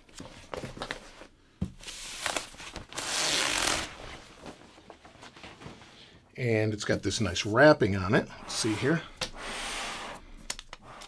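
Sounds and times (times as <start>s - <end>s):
sliding hisses: 8.3s - 11.0s.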